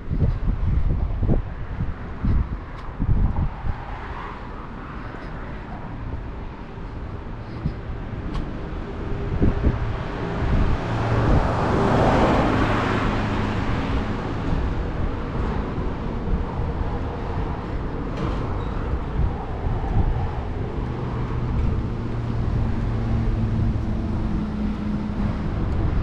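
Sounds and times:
road traffic passing: 0.0s - 26.0s
steady low rumble: 0.0s - 26.0s
vehicle passing close: 2.2s - 26.0s.

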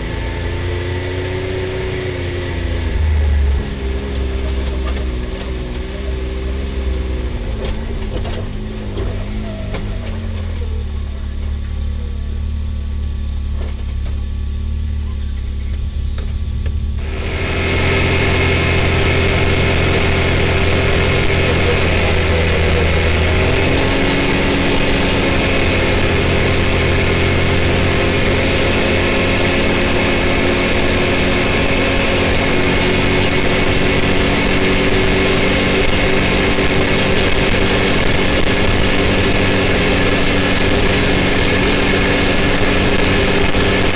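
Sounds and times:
off-road vehicle engine running: 0.0s - 43.9s.

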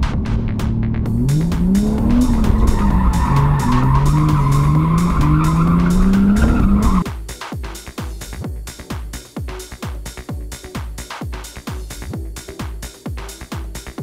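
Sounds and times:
car engine revving: 0.0s - 7.0s
electronic music with steady beat: 0.1s - 14.0s
tyres squealing: 1.8s - 7.0s.

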